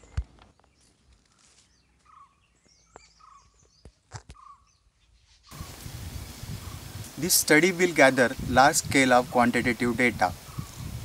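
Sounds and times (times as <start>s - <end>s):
birds chirping: 0.0s - 11.0s
steady outdoor hiss: 4.8s - 11.0s.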